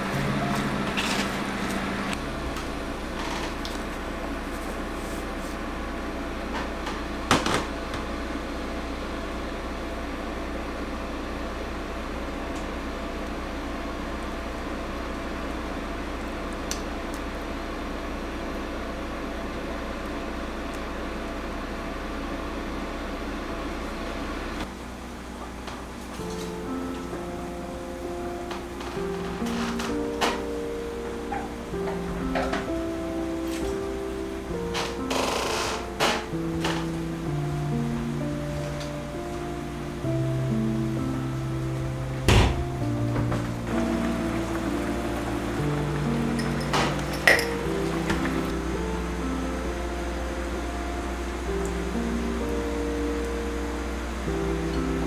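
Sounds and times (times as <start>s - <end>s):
appliance fan humming: 0.0s - 55.0s.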